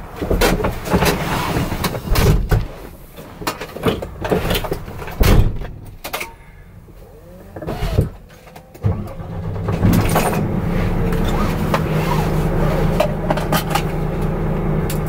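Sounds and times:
knocks and clatter in truck cab: 0.0s - 6.3s, 7.6s - 12.2s
low rumble: 6.5s - 15.0s.

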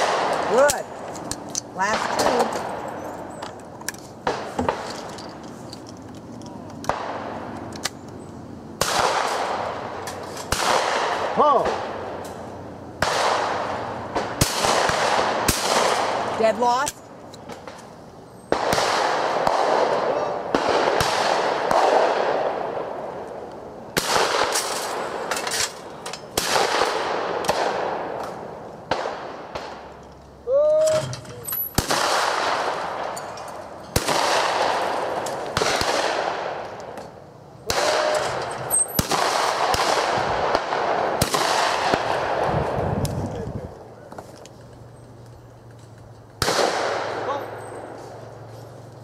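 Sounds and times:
shotgun shots echoing: 0.0s - 1.0s, 1.8s - 3.0s, 8.8s - 12.2s, 13.0s - 16.9s, 18.5s - 23.2s, 24.0s - 25.7s, 26.3s - 29.8s, 31.6s - 33.2s, 33.9s - 37.0s, 37.6s - 42.5s, 46.4s - 48.0s.

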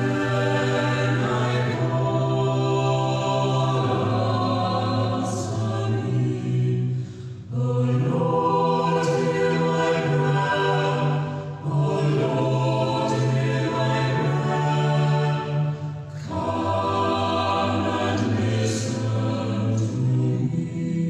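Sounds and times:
choir singing held chords: 0.0s - 21.0s.

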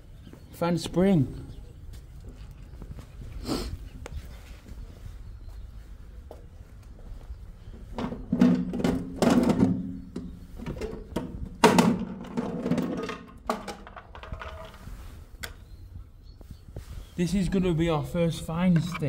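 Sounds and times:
wooden box thumps and knocks: 8.0s - 14.8s.

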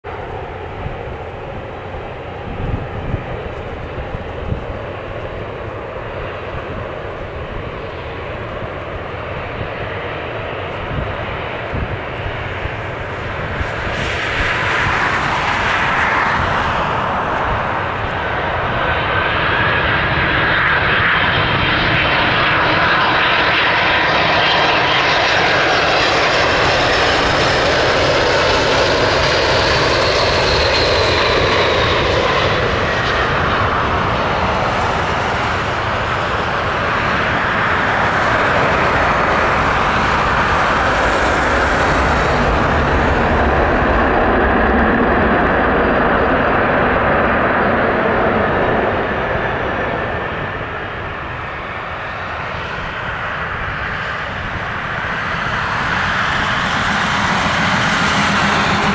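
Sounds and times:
jet engine roar and whine: 0.0s - 58.9s.

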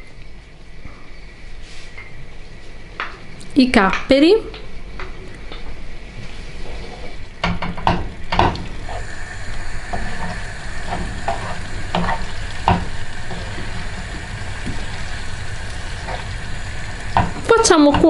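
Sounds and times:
food sizzling in a frying pan: 7.6s - 18.0s
wooden spoon scraping a pan: 9.9s - 13.6s.

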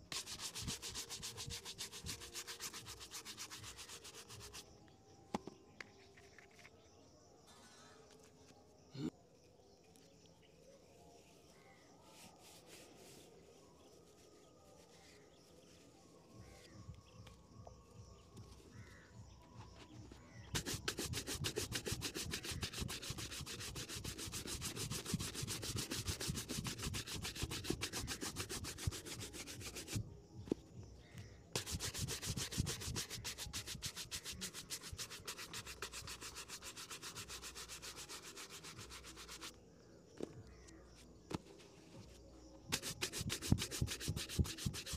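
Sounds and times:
brush scrubbing a shoe: 0.0s - 4.7s, 19.8s - 30.6s, 31.6s - 39.6s, 42.7s - 44.9s.

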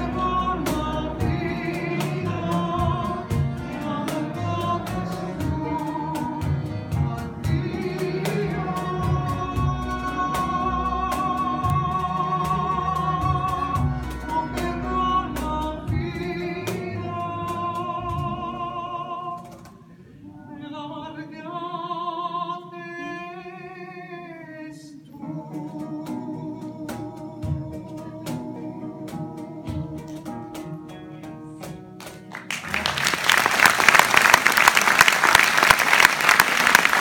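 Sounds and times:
tapping rhythm: 0.0s - 18.5s
countertenor singing with vibrato: 0.0s - 30.8s
acoustic string ensemble: 0.0s - 37.0s.

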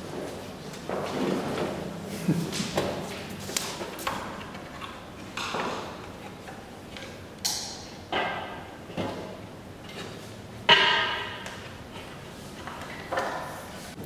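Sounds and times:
objects knocking and clicking: 3.6s - 13.6s.

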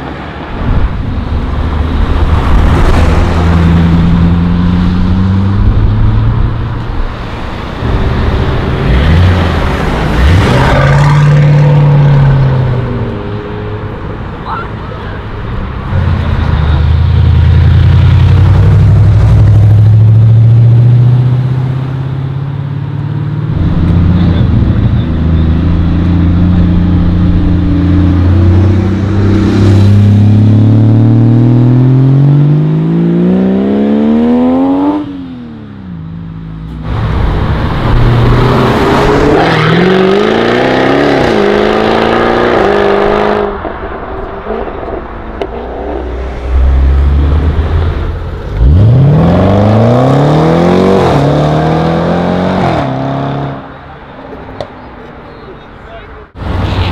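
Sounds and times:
sports car engines accelerating: 0.0s - 56.9s
engine revving up and down: 23.5s - 35.5s, 37.2s - 43.6s, 44.2s - 53.6s.

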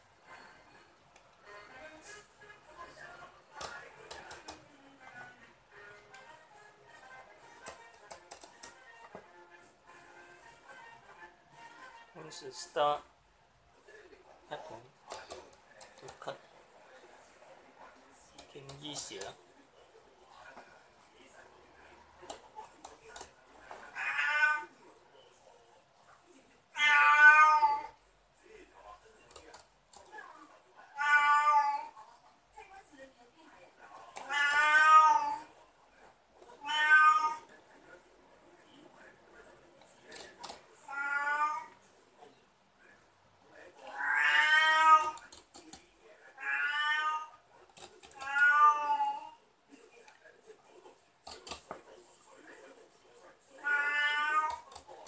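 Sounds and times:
cat meowing: 23.9s - 24.8s, 26.7s - 28.0s, 30.8s - 32.0s, 34.2s - 35.5s, 36.6s - 37.5s, 40.9s - 41.8s, 43.9s - 45.3s, 46.4s - 47.4s, 48.1s - 49.4s, 53.6s - 54.8s.

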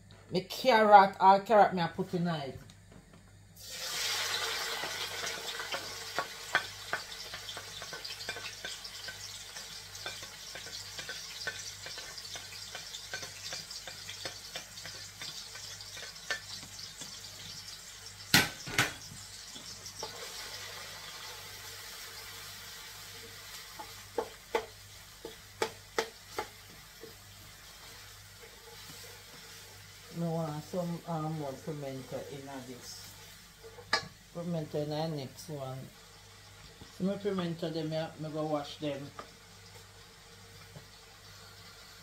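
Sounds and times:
vegetables sizzling in hot oil: 3.6s - 42.0s
spoon knocking on pot: 24.2s - 26.5s.

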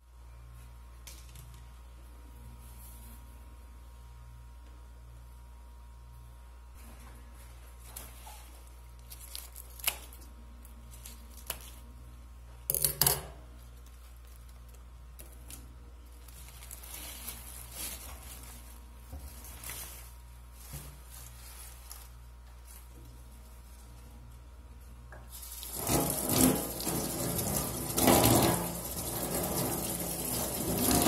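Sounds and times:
leaves crunching tear: 9.1s - 10.2s, 16.1s - 22.2s
leaves rustling: 16.1s - 24.0s.

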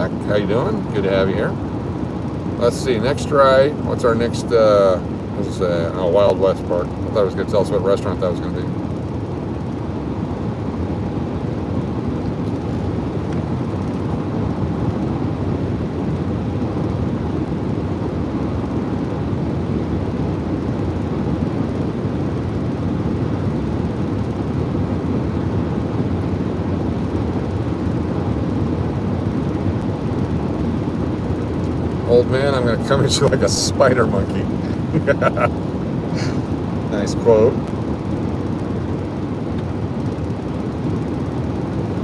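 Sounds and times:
car road and tyre noise: 25.4s - 42.0s.

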